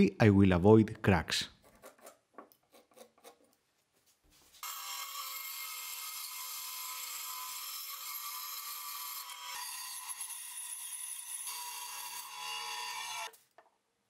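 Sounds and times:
bandsaw cutting wood: 4.6 - 13.3.

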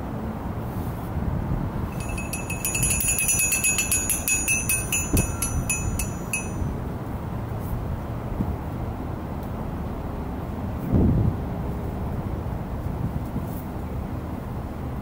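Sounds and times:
ringing metal percussion strikes: 1.9 - 6.8.

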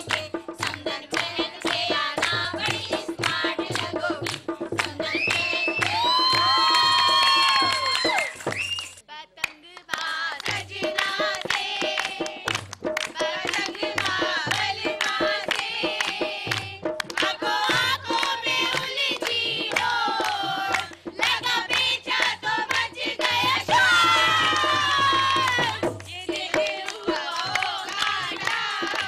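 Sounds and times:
hand drum beat: 0.0 - 8.6, 10.4 - 29.0
hand clapping: 0.0 - 22.8, 24.4 - 29.0
women and girls singing folk song: 0.0 - 29.0.

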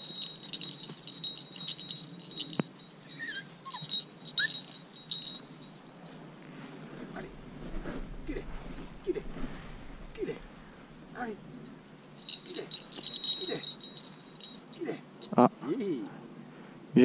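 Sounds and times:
bird chirping: 0.0 - 6.3
small bell jingling: 0.0 - 6.3, 11.5 - 15.5.

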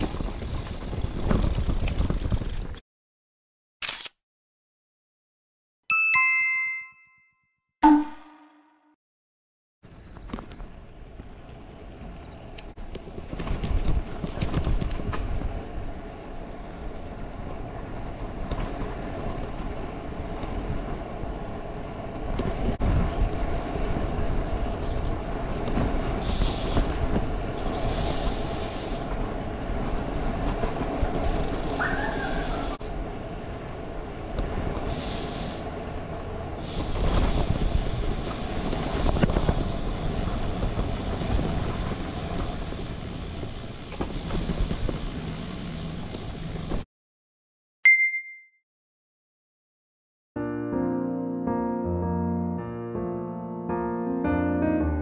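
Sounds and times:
bicycle rattling over bumps: 0.0 - 2.8, 36.6 - 46.8
bicycle tyre hum: 0.0 - 2.8, 9.9 - 46.8
wind rumble: 0.0 - 2.8, 10.0 - 46.8.

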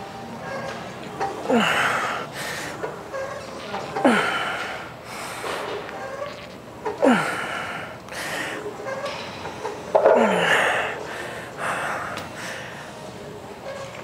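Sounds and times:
man groaning: 1.5 - 2.2, 7.0 - 7.5
man breathing heavily: 1.5 - 2.8, 4.0 - 5.6, 7.0 - 8.7, 10.2 - 13.0.

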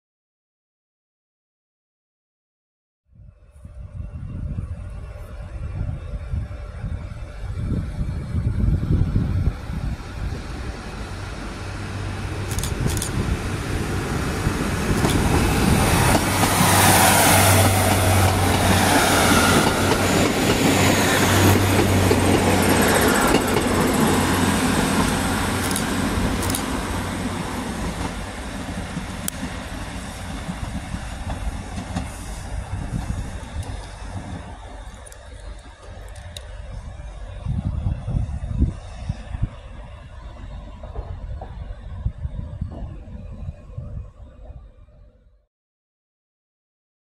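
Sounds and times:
diesel train engines droning: 3.2 - 44.6
train clicks: 12.2 - 36.7.

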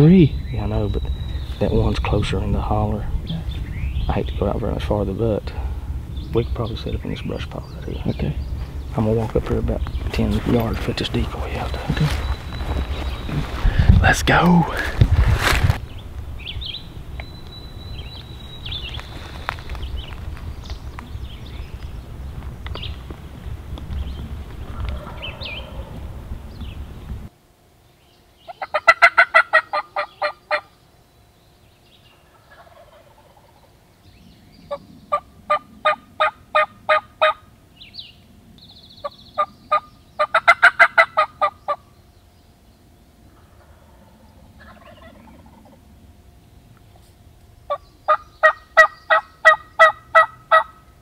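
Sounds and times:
turkey call yelps: 28.5 - 30.7, 34.7 - 37.5, 39.4 - 41.9, 43.4 - 45.8, 47.7 - 50.9.

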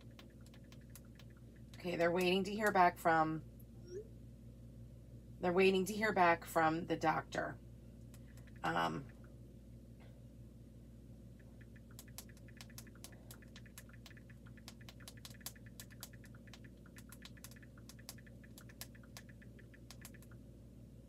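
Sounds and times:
typing taps on phone: 0.0 - 2.8, 11.4 - 20.4
steady low hum: 0.0 - 21.0.

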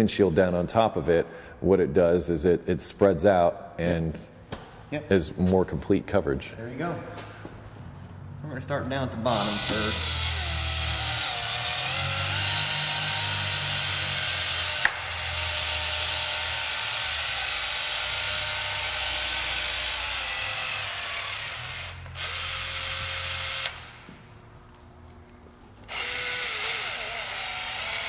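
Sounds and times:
caulking gun motor running: 9.3 - 24.0, 25.8 - 28.0.

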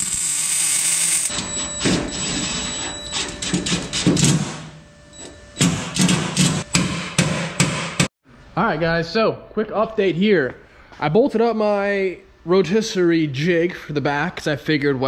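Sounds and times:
hissing crackling tool noise: 0.0 - 1.3
sharp metal knocks: 5.6 - 8.1.

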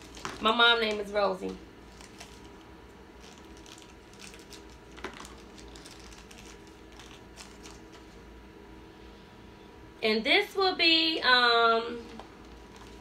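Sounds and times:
plastic crinkles: 0.0 - 8.2, 12.0 - 13.0.

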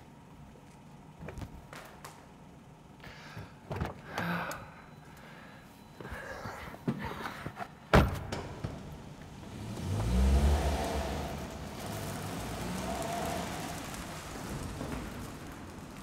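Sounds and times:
car door slamming shut: 7.9 - 8.8.

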